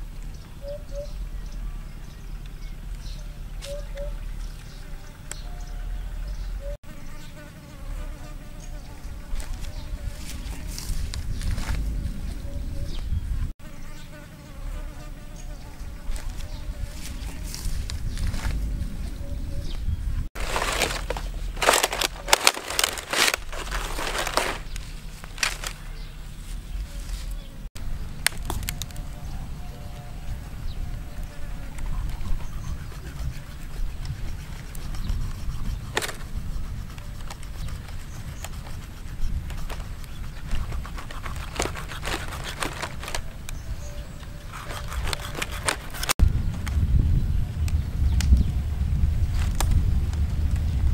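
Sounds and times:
low rumble: 0:09.0 - 0:13.5, 0:15.7 - 0:34.4, 0:46.2 - 0:50.9
dry palm fronds crackling: 0:09.2 - 0:12.5, 0:16.0 - 0:19.2, 0:20.4 - 0:32.2, 0:37.2 - 0:50.9
knife cutting wet flesh: 0:44.5 - 0:46.2.

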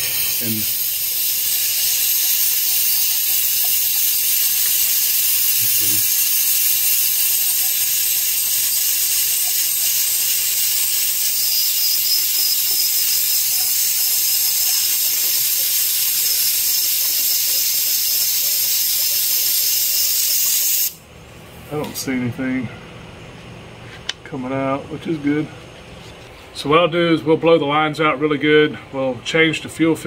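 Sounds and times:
compressed air hissing from nozzle: 0:00.0 - 0:21.0.

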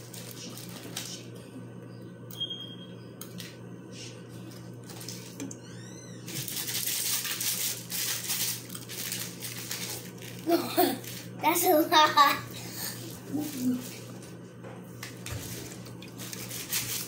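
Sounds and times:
sprinkles rattling in plastic shaker: 0:06.4 - 0:11.3, 0:16.1 - 0:17.0.

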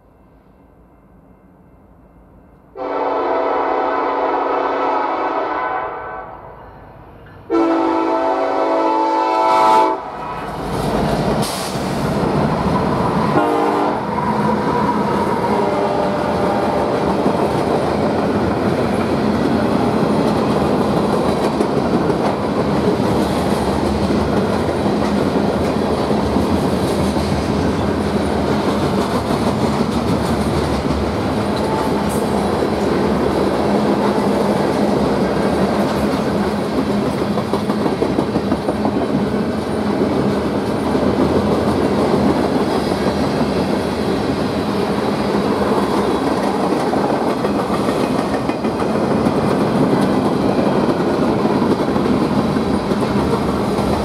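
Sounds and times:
freight train rumbling past: 0:02.4 - 0:54.0
locomotive air horn: 0:02.8 - 0:06.6, 0:07.5 - 0:10.5, 0:13.4 - 0:14.1, 0:15.5 - 0:17.0.

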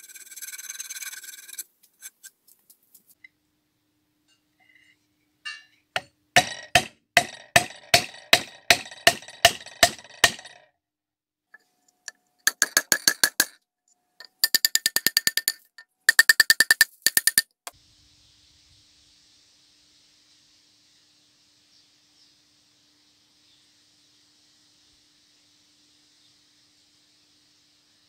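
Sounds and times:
hammer striking iron on wood: 0:05.5 - 0:10.6.

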